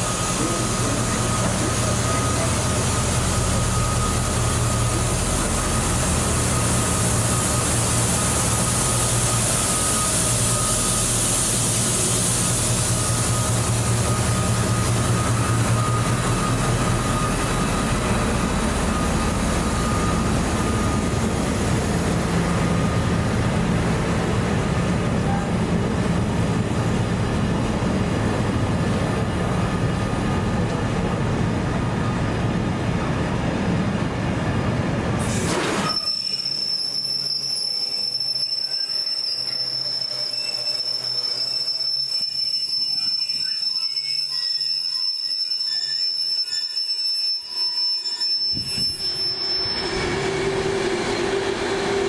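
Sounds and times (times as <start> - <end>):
locomotive engine hum: 0.0 - 35.2, 48.5 - 52.0
freight train rumbling past: 0.0 - 36.2, 48.6 - 52.0
high-pitched wheel squeal: 35.7 - 52.0.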